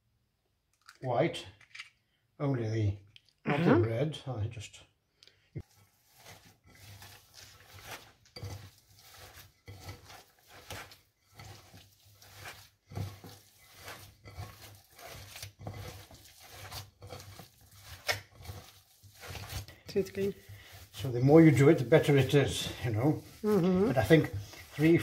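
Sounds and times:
hands squishing minced meat: 5.6s - 25.0s.

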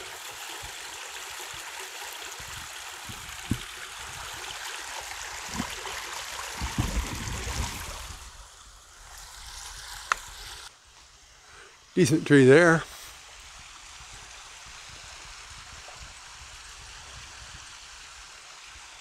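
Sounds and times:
stream running water: 0.0s - 19.0s.

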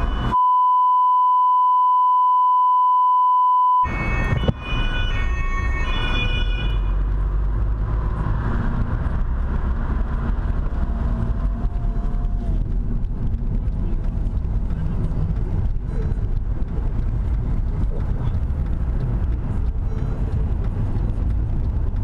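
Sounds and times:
car engine rumble: 0.0s - 0.4s, 3.8s - 22.0s
car road noise: 0.0s - 0.4s, 3.8s - 22.0s
censor bleep tone: 0.0s - 4.5s
siren alternating tones: 0.0s - 7.0s.

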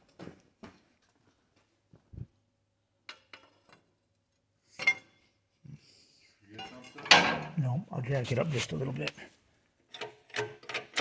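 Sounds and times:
metal clank: 6.6s - 7.6s.

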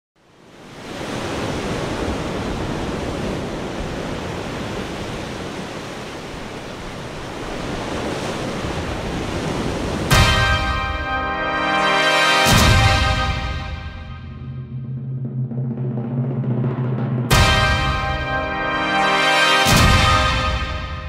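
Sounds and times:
loud sustained musical chord: 10.1s - 14.5s, 17.3s - 21.0s.

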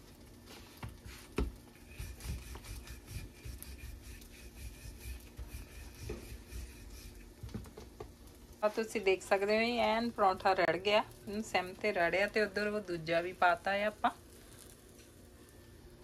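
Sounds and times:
flatbread rubbing on griddle: 0.5s - 7.4s.

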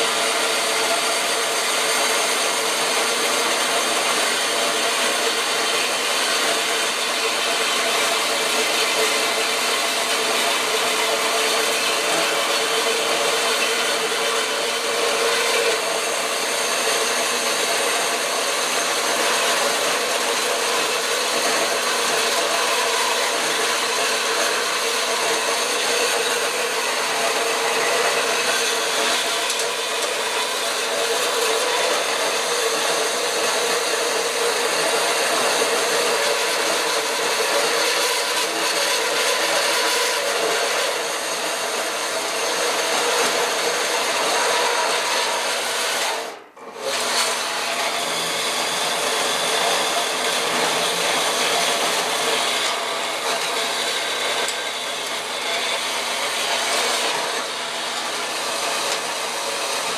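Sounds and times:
band saw cutting metal: 0.0s - 59.9s.

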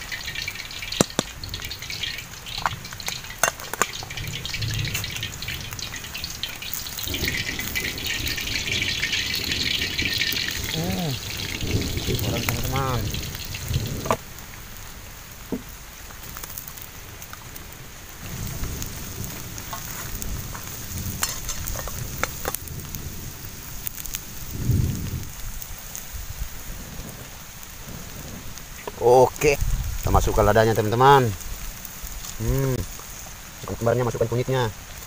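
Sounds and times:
wood fire hissing and crackling: 0.0s - 35.0s
breath blown onto embers: 6.7s - 14.2s, 31.4s - 33.4s.

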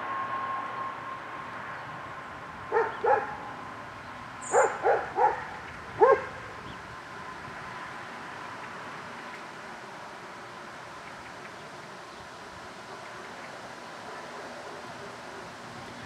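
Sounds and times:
approaching train: 0.0s - 16.0s
dog barking: 2.7s - 3.4s, 4.5s - 6.4s, 14.0s - 15.2s.

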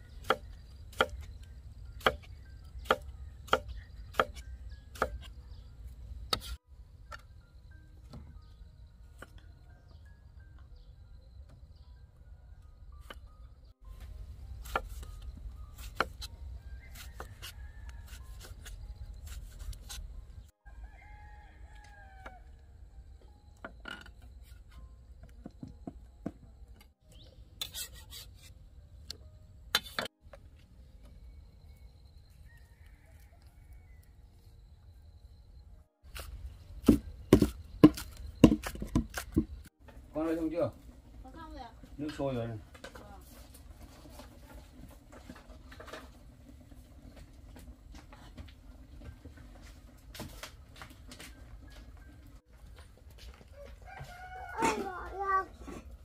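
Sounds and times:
cleaver chopping on wooden block: 2.0s - 5.3s, 36.2s - 39.6s
rooster crowing: 20.6s - 22.6s, 32.4s - 34.2s, 53.4s - 55.1s.

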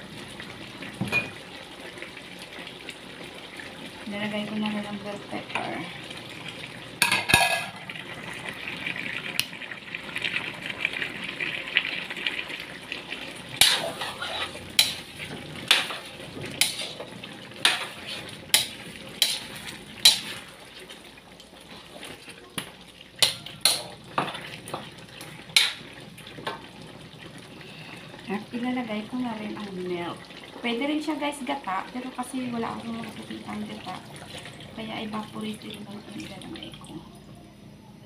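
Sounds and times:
stew sizzling in a wok: 0.0s - 36.4s
metal spatula clanking on pan: 7.0s - 7.8s, 13.6s - 20.4s, 23.2s - 24.8s, 25.6s - 25.9s.

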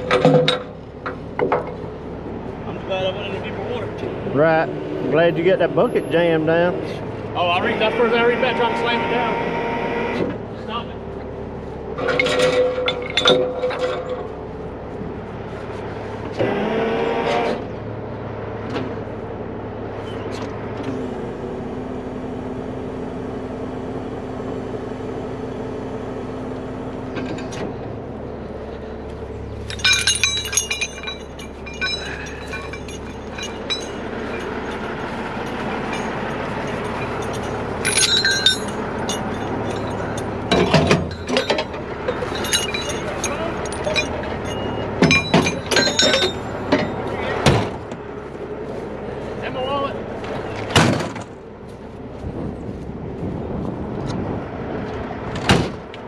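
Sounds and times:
diesel engine running: 0.0s - 56.0s
chains and hooks clanking: 12.0s - 14.3s, 29.6s - 47.5s.

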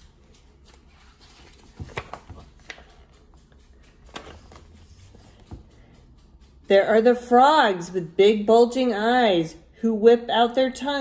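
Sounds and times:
book page rustling: 0.0s - 5.7s.

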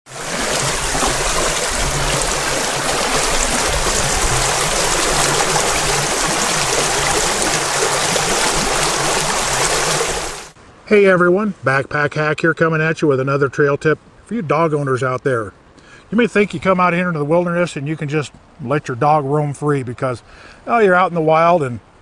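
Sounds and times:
stream flowing over pebbles: 0.0s - 10.6s.

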